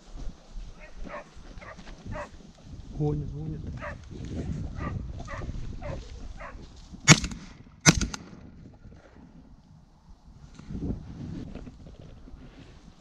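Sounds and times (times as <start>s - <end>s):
hound baying: 0.8s - 2.4s, 3.8s - 4.0s, 4.8s - 6.6s
shotgun shots: 7.0s - 8.5s.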